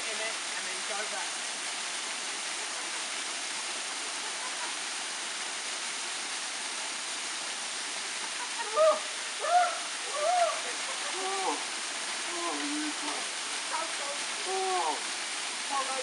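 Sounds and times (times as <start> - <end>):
waterfall rushing: 0.0 - 16.0
person calling out: 8.7 - 11.6, 12.3 - 13.3, 14.4 - 15.0.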